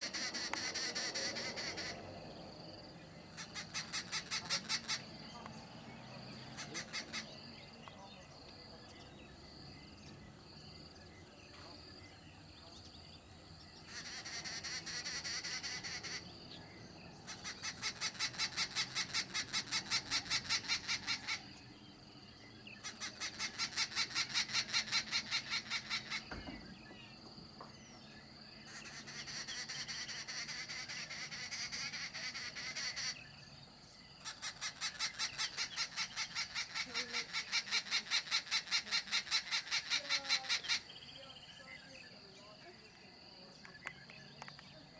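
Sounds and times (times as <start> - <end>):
bird chattering calls: 0.0 - 2.1, 3.2 - 9.2, 13.8 - 21.9, 22.6 - 27.2, 28.6 - 33.5, 34.2 - 42.2.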